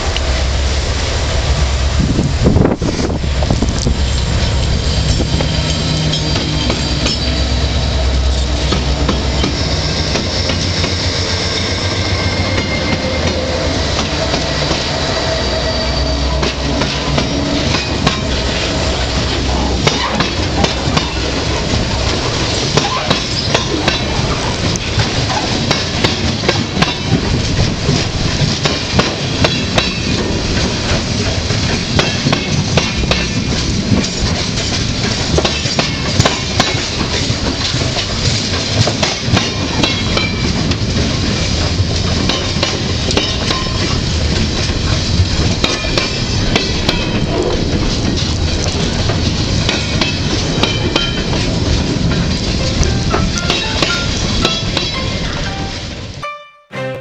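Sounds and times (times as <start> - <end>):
diesel locomotive rumbling: 0.0 - 57.0
train wheels clattering over joints: 3.4 - 7.7, 8.4 - 55.5
high wheel squeal: 4.4 - 20.3, 22.8 - 24.3.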